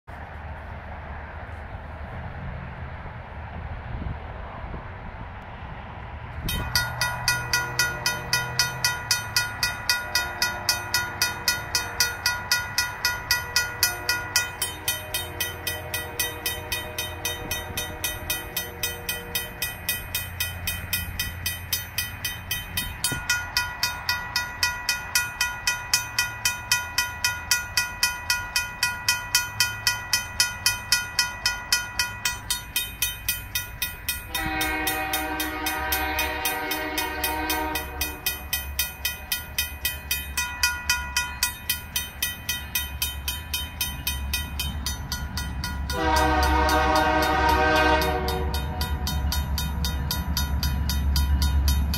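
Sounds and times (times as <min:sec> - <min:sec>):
railroad crossing bell ringing: 0:06.4 - 0:51.9
train horn: 0:07.4 - 0:12.3, 0:13.1 - 0:19.8, 0:34.2 - 0:38.5, 0:45.9 - 0:49.3.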